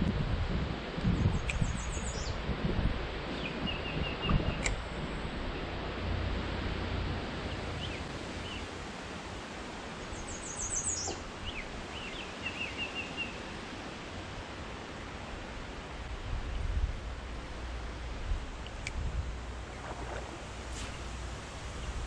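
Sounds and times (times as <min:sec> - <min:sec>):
low wind rumble: 0:00.0 - 0:22.0
songbirds chirping: 0:10.0 - 0:13.6
outdoor hiss: 0:17.0 - 0:22.0.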